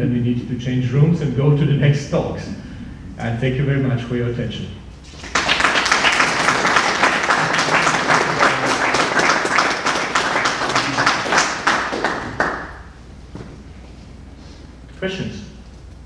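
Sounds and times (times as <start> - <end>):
audience applause: 5.0 - 12.8.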